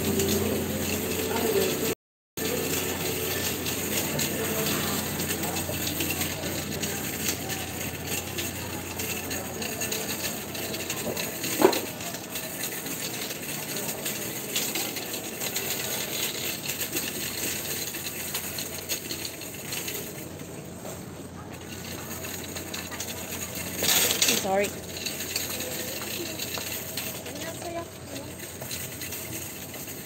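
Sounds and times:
metallic clinks and rattles: 0.0 - 30.0
store hubbub: 0.0 - 30.0.

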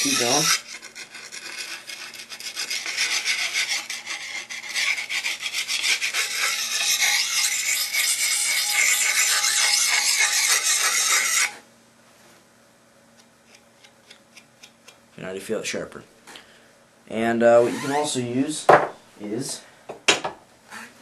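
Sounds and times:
sharpening stone scraping a blade: 0.0 - 11.6.

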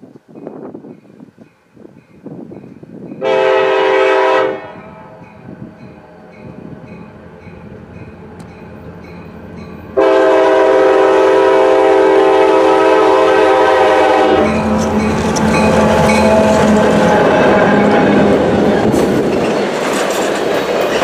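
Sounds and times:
diesel locomotive engine: 0.2 - 21.0
locomotive horn blast: 3.2 - 5.2, 9.9 - 18.9.

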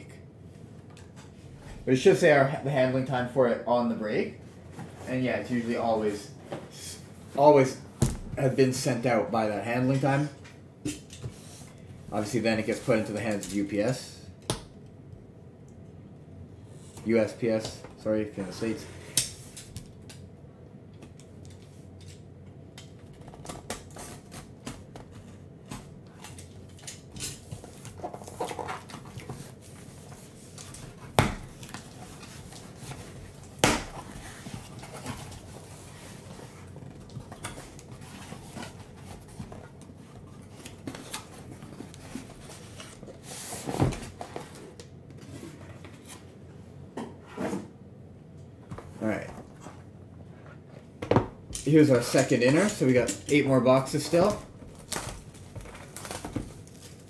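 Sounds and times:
cardboard rustling: 54.0 - 57.0.

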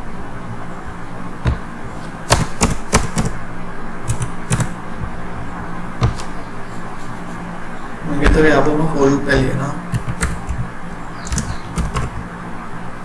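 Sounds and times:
steady low hum: 0.0 - 13.0
keyboard keystrokes: 2.3 - 3.4, 4.1 - 4.8, 9.9 - 12.2.

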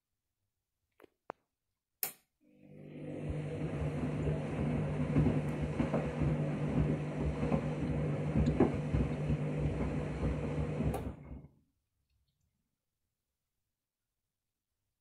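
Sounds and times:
washing machine motor hum: 2.4 - 11.6.

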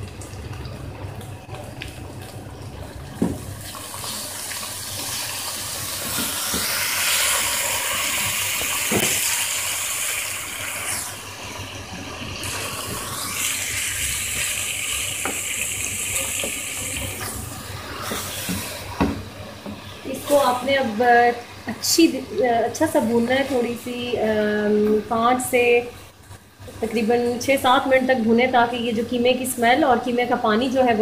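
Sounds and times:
meat sizzling in hot oil: 3.4 - 20.9.

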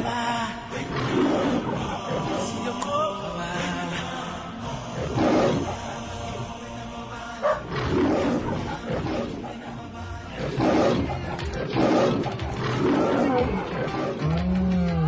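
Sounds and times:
music: 0.0 - 15.0
big cat growling: 0.9 - 2.6, 5.0 - 5.9, 7.4 - 9.7, 10.4 - 15.0.

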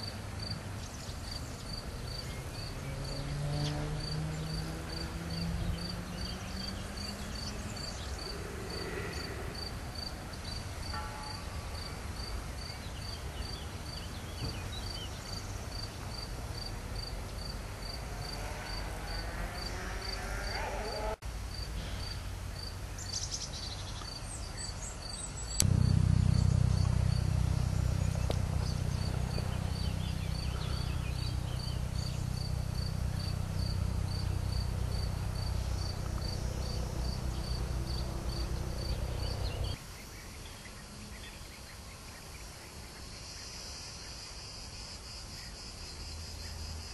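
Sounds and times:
cricket chirping: 0.0 - 40.2, 41.2 - 46.9
low droning hum: 25.6 - 39.8.

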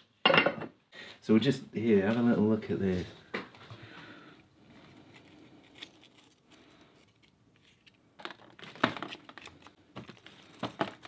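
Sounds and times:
plastic crinkling: 4.6 - 11.0.

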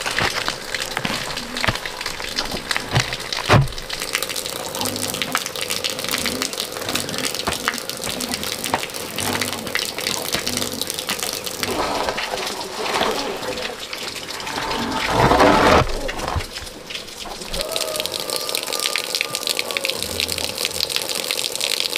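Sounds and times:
clicks and knocks: 0.0 - 4.1
water running and splashing: 0.0 - 21.9
heavy thump: 3.0 - 3.8.

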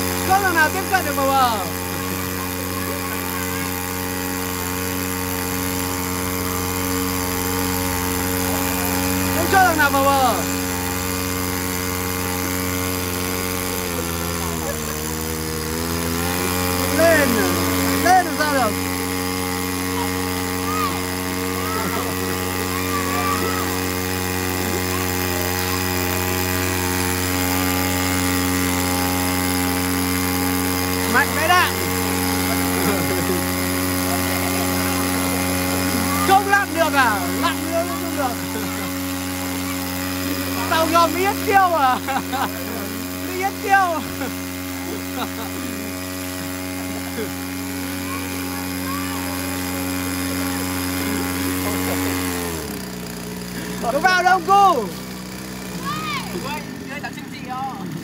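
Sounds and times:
high-pressure water jet hissing: 0.0 - 58.0
water pump engine drone: 0.0 - 58.0.

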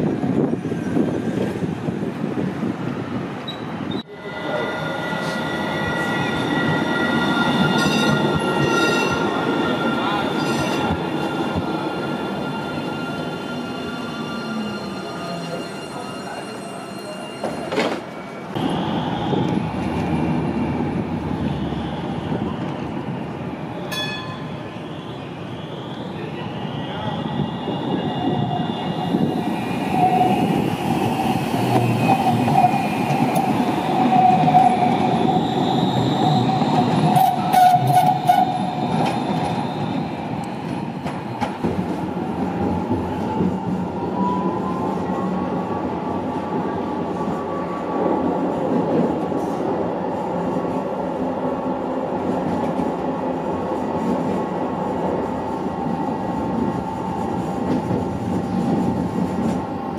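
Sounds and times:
tram running rumble: 0.0 - 25.3, 26.1 - 59.9
tram wheels squealing: 3.4 - 20.4, 21.3 - 41.8.

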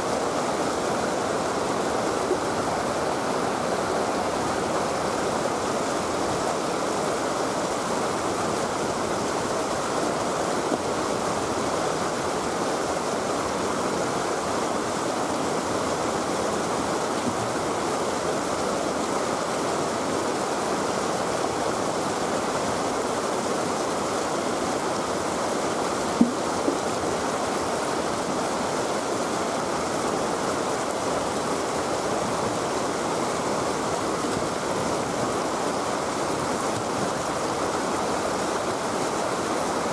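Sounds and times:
river water rushing over weir: 0.0 - 39.9
brief knock: 26.2 - 26.4.

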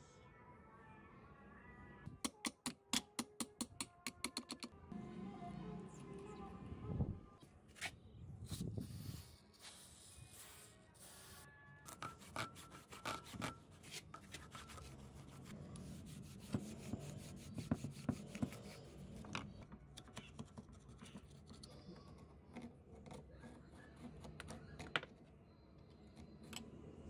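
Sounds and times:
screwdriver scraping metal: 11.9 - 13.6.

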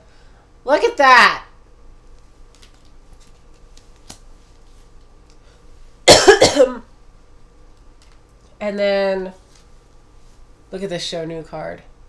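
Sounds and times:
faint ticks of cards handled: 2.1 - 5.4, 7.7 - 8.6
person coughing: 6.1 - 6.9.

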